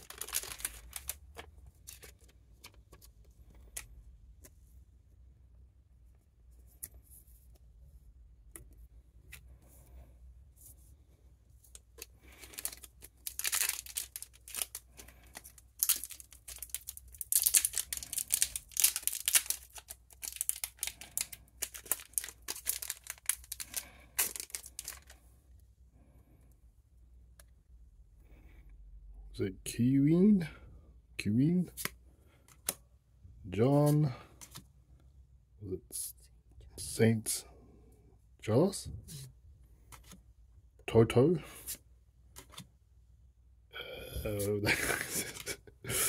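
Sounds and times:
plastic packaging tearing and crinkling: 0.0s - 2.2s, 12.4s - 25.1s.

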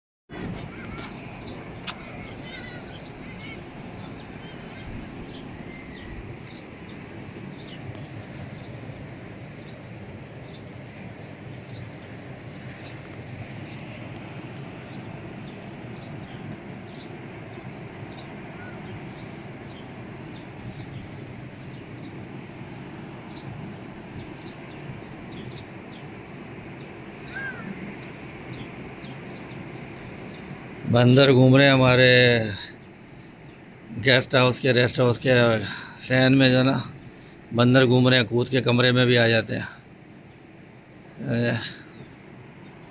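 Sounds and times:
steady low rumble: 0.3s - 31.2s
birds chirping: 0.3s - 42.9s
low rushing background: 0.3s - 42.9s.

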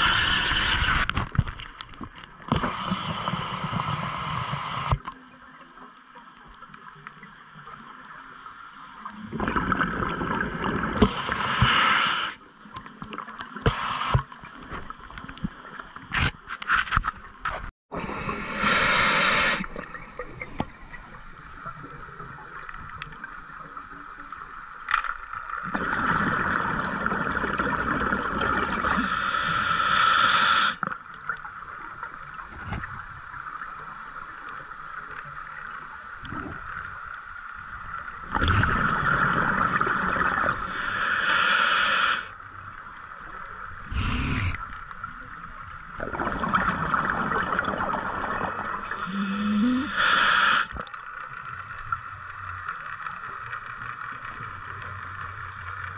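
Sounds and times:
diver breathing through regulator: 0.0s - 1.1s, 11.0s - 12.4s, 18.0s - 19.7s, 28.8s - 30.8s, 40.6s - 42.4s, 43.6s - 44.8s, 48.7s - 50.8s
underwater water noise: 0.0s - 55.9s
gurgling exhaled bubbles: 9.2s - 12.3s, 25.6s - 29.4s, 38.2s - 41.1s, 45.9s - 50.9s.

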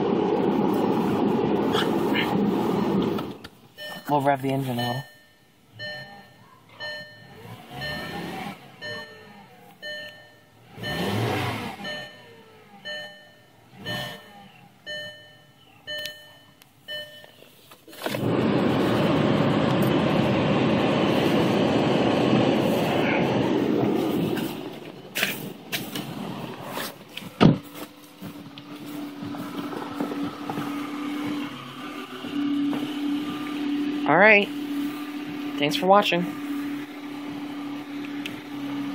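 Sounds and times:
loud rushing noise: 0.0s - 3.4s, 18.1s - 27.0s
car engine revving: 0.0s - 3.6s, 5.7s - 16.2s, 17.9s - 38.9s
dashboard warning chime: 3.7s - 17.6s, 30.2s - 38.9s.

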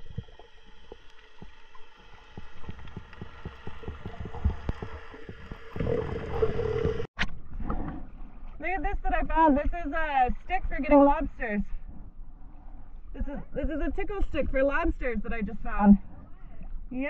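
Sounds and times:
steady low hum: 0.0s - 7.1s
water rushing: 0.0s - 7.1s
underwater clicks and crackles: 0.0s - 8.6s.

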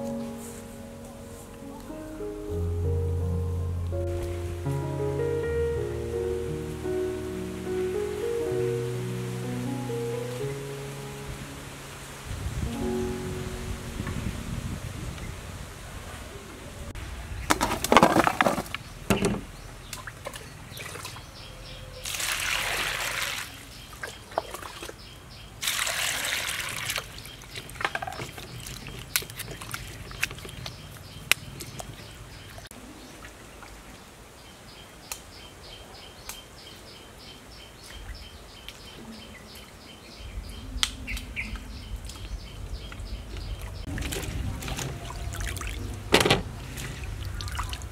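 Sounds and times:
small knocks: 17.5s - 19.5s
water splashing in a metal basin: 19.1s - 21.2s, 22.0s - 25.0s, 25.6s - 32.5s, 43.6s - 47.9s.

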